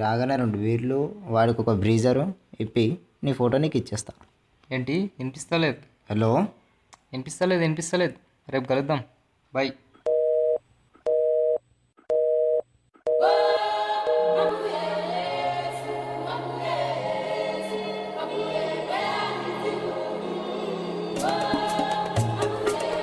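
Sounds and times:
telephone busy tone beeping: 10.1 - 14.5
music with choir-like singing: 13.2 - 23.0.

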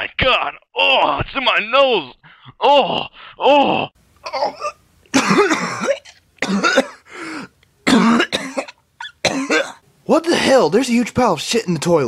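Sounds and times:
man coughing and gagging: 2.3 - 9.8.

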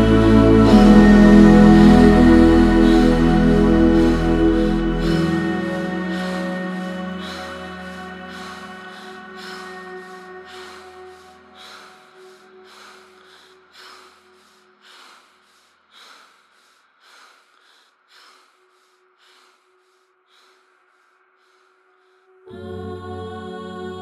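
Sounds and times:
music: 0.0 - 14.6, 22.3 - 24.0
person panting: 0.0 - 22.4.

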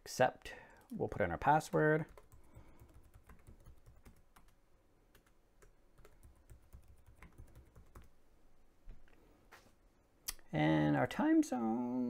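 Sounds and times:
typing on computer keyboard: 0.7 - 8.2.

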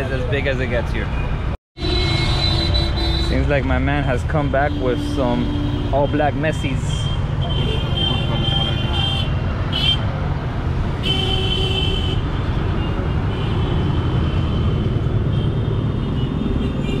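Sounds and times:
street traffic rumbling: 0.0 - 17.0
vehicle horn: 1.8 - 3.5, 4.5 - 6.2, 7.1 - 10.0, 11.0 - 12.2.

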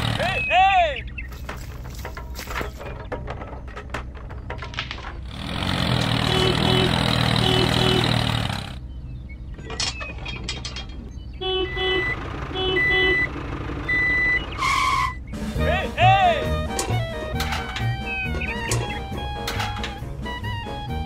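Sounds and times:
truck engine rushing: 0.0 - 21.0
reversing alarm beeping: 11.4 - 15.3.

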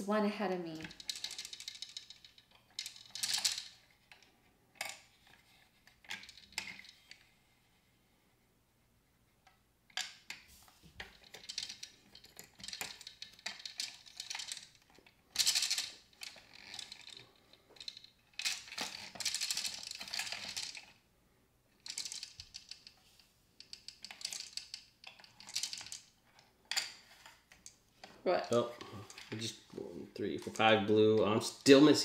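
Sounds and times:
plastic tokens rattling: 0.0 - 7.2, 9.9 - 21.0, 21.7 - 29.6
plastic gears clicking and ratcheting: 0.7 - 5.4, 11.0 - 21.0, 21.8 - 23.0, 23.6 - 26.9.

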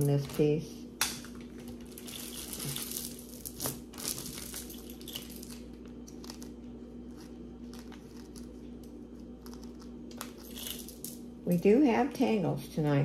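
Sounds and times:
plastic bags crinkling: 1.2 - 8.6, 9.3 - 11.2.

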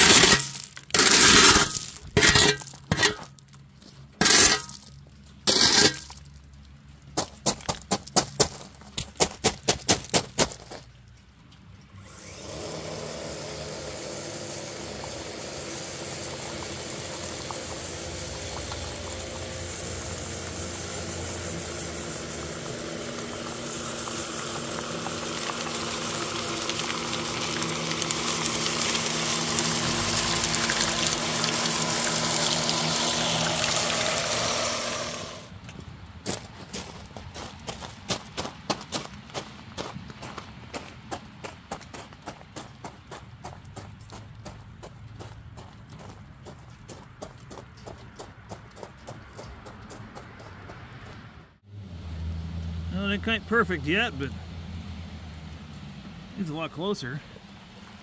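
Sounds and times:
rotating brush machine sweeping stones: 0.0 - 3.4, 4.0 - 6.5, 12.0 - 35.6.

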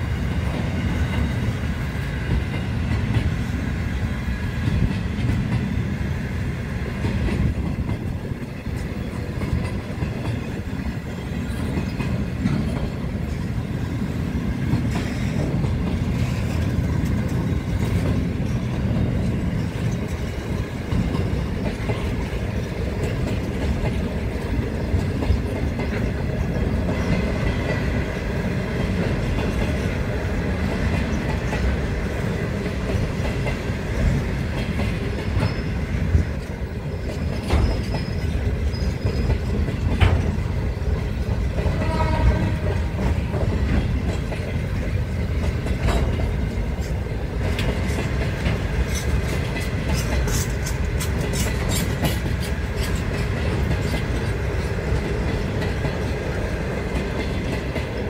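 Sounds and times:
clickety-clack over rail joints: 0.0 - 58.0
train wheels rumbling on rails: 0.0 - 58.0
wheels squealing: 35.2 - 39.6.

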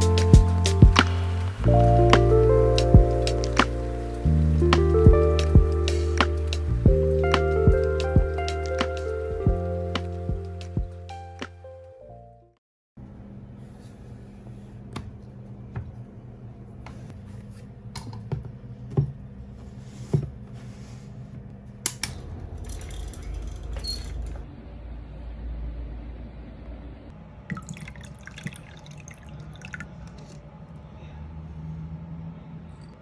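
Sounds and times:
water pouring into a glass: 27.5 - 30.4.

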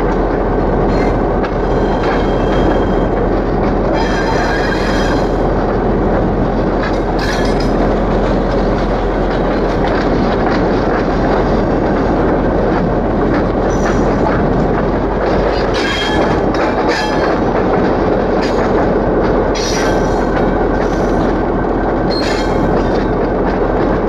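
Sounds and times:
locomotive rumble and rattle: 0.0 - 24.0
high-pitched wheel squeals: 0.9 - 3.1.

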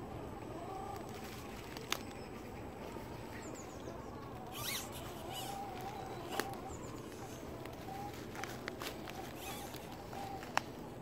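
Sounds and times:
toy truck motor whining: 2.9 - 10.6.

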